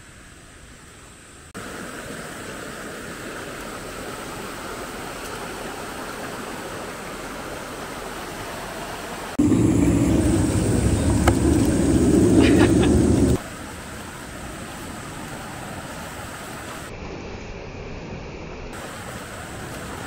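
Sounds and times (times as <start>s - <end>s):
stream rushing over rocks: 1.6s - 16.9s.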